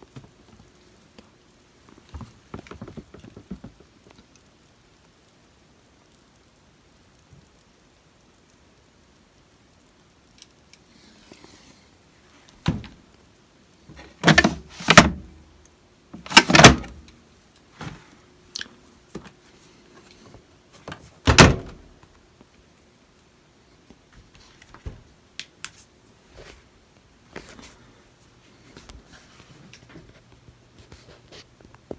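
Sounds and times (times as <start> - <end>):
washer door thumps and knocks: 16.3 - 17.0, 21.3 - 21.8.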